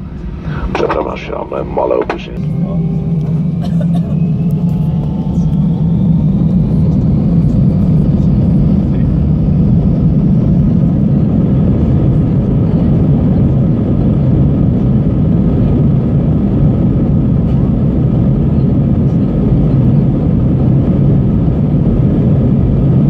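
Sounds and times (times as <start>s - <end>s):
jet engines spooling up: 0.0s - 23.0s.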